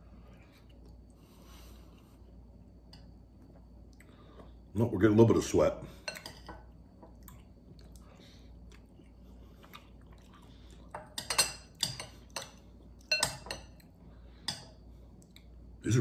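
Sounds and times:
metal utensil clinking on glass bowl: 13.1s - 13.8s.

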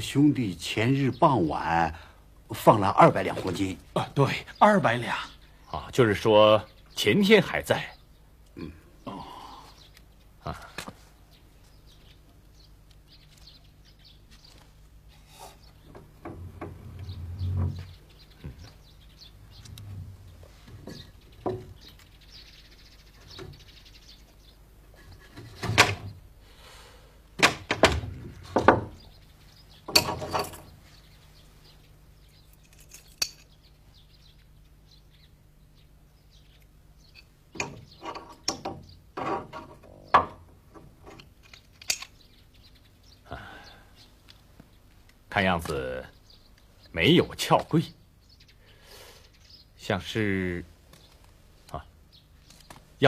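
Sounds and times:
low hum: 14.8s - 23.1s
metal latch clicking and rattling: 27.4s - 29.0s, 29.9s - 30.7s, 37.2s - 42.2s.

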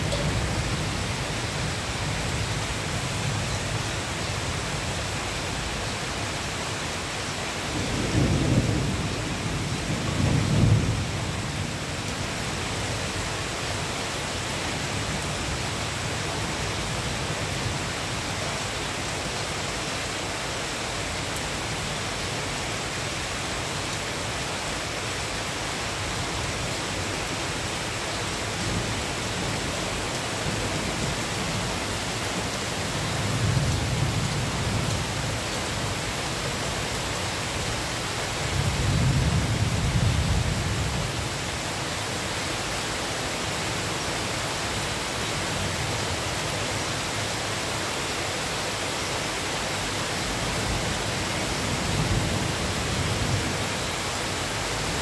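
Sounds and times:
rain falling on foliage and pavement: 0.0s - 55.0s.

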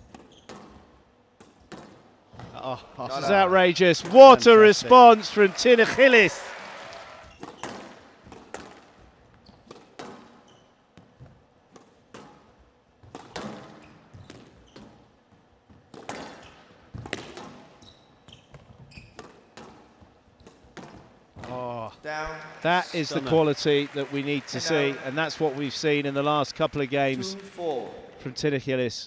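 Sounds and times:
court shoes squeaking: 0.0s - 2.7s, 4.0s - 21.6s.

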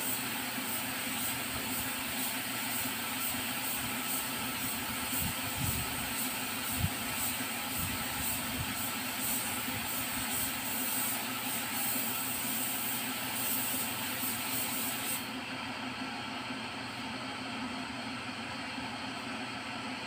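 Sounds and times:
spray gun hissing: 0.0s - 15.3s.

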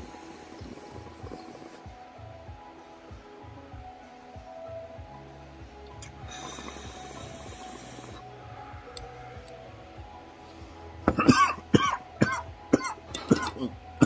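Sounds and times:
air hissing through glass rig: 0.0s - 1.9s, 6.0s - 13.7s
harsh coughing: 11.1s - 13.7s.

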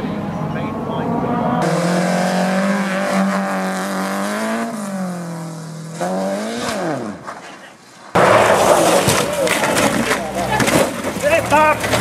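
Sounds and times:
rally car engine at high revs: 0.0s - 7.4s.

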